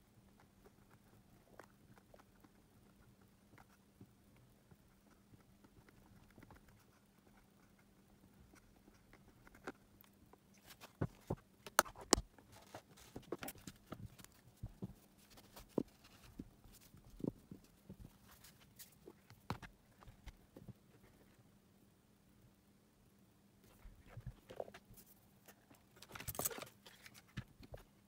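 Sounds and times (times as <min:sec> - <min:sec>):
faint steady hum: 0:00.0 - 0:28.0
paper crinkling: 0:23.7 - 0:27.8.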